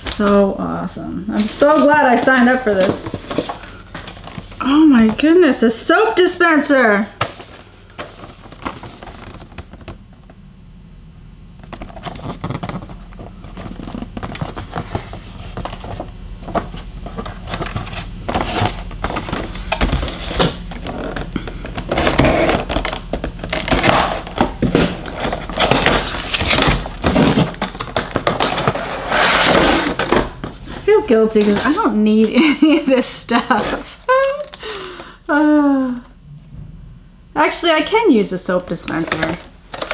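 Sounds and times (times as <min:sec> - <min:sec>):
packaging crinkling: 0:07.2 - 0:10.0, 0:11.6 - 0:31.8.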